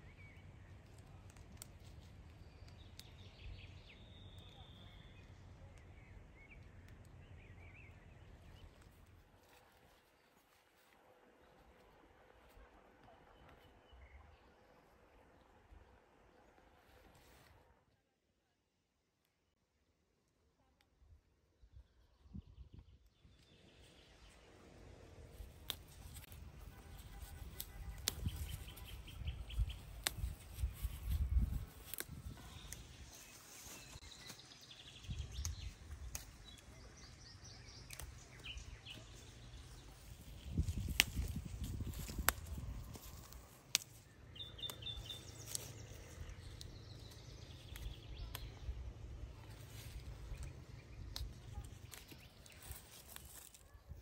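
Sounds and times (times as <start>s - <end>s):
leaves and stems rustling: 0.3s - 5.2s, 8.2s - 13.7s, 23.8s - 54.0s
stems snapping: 0.6s - 4.8s, 25.2s - 34.4s, 35.1s - 53.6s
bird chirping: 22.1s - 43.0s, 44.0s - 53.9s
flowers plucked by hand: 25.3s - 33.0s, 35.1s - 37.0s, 37.8s - 39.1s, 40.4s - 53.6s.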